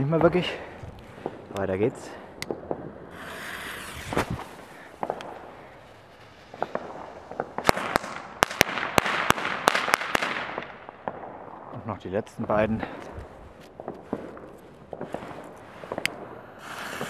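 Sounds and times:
crackling sparks: 0:00.0 - 0:11.1, 0:12.5 - 0:17.0
firecracker fuse hissing: 0:03.0 - 0:08.1, 0:16.4 - 0:17.0
firecracker bangs: 0:06.5 - 0:10.7.

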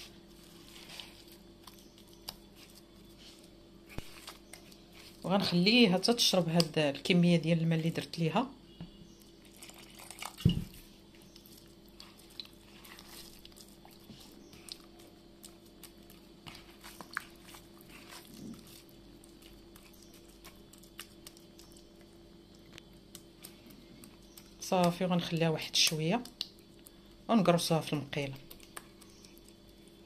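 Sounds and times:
dough pressed by hand crunching: 0:00.0 - 0:06.8.

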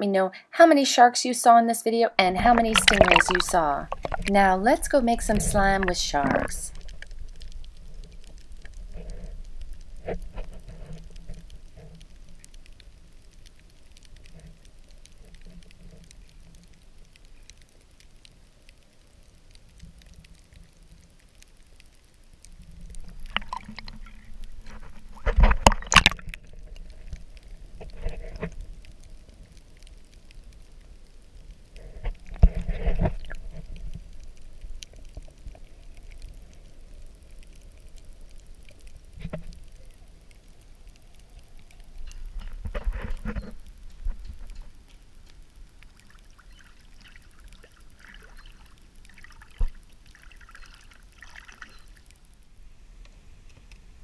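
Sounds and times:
muffled underwater noise: 0:02.2 - 0:10.3
water splashing and sloshing: 0:02.2 - 0:52.3.

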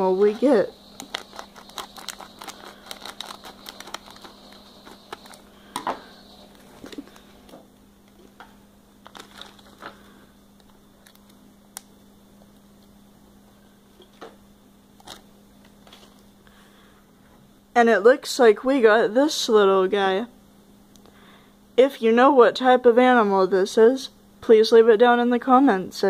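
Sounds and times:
plastic packet crinkling: 0:00.2 - 0:08.4, 0:09.0 - 0:11.4, 0:15.0 - 0:16.3.

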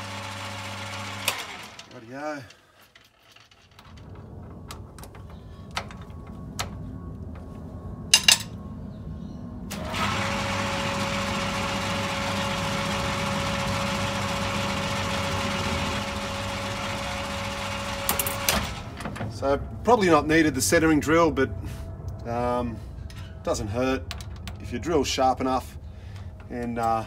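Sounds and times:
lathe running with whine: 0:00.0 - 0:02.0, 0:09.7 - 0:18.8.

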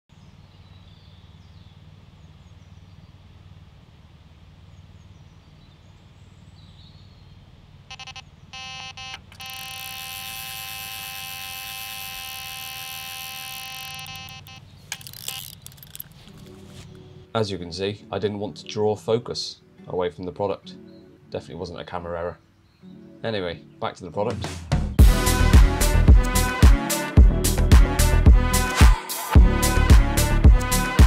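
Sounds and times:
low outdoor rumble: 0:00.1 - 0:08.6
bite alarm beeps: 0:07.9 - 0:15.5.

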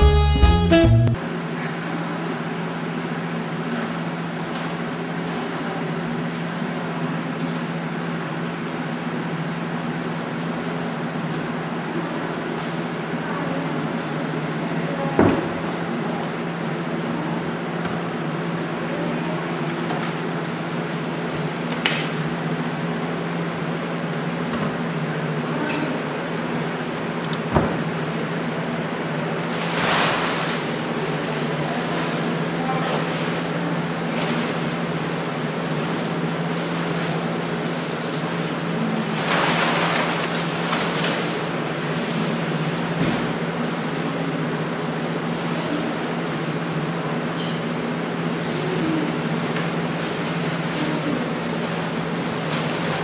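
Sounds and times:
paper costumes rustling: 0:29.5 - 0:42.4.

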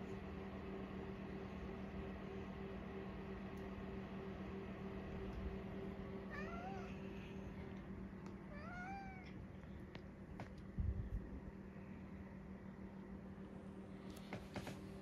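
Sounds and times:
low hum: 0:00.0 - 0:15.0
cat meowing: 0:06.3 - 0:07.0, 0:08.5 - 0:09.4.

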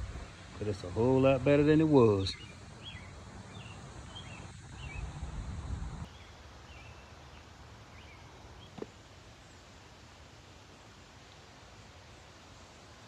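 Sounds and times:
small birds chirping: 0:00.0 - 0:09.0.

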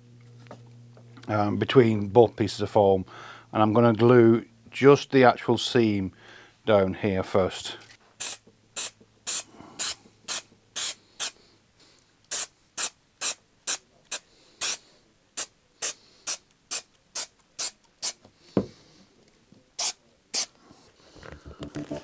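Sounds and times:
aerosol can hissing: 0:08.2 - 0:11.4, 0:12.3 - 0:14.8, 0:15.4 - 0:18.2.

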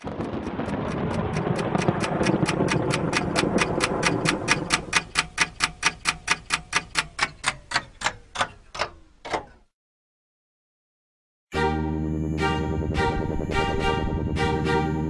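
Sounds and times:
dense rumbling noise: 0:00.0 - 0:05.2, 0:12.8 - 0:14.9
sharp ticking: 0:00.0 - 0:09.0.

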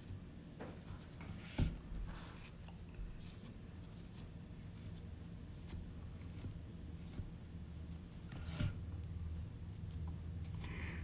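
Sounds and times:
fingers rubbing pie dough: 0:00.8 - 0:11.0.

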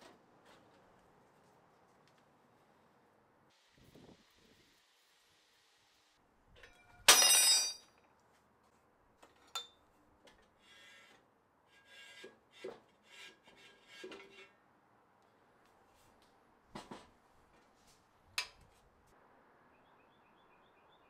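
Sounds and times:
metal part dropping and ringing: 0:06.6 - 0:07.9
metal-on-metal scraping: 0:10.6 - 0:14.6.

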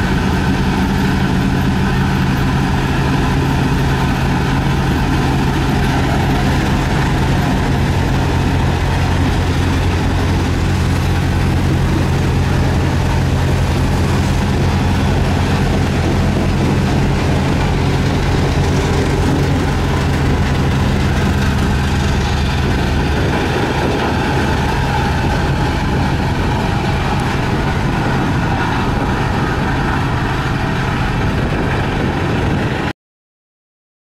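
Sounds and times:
road roller diesel engines: 0:00.0 - 0:32.9.

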